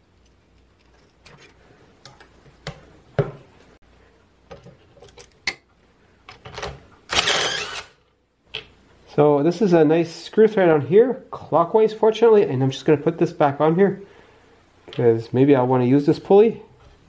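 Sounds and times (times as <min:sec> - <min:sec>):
cordless drill running: 0:07.1 - 0:08.0.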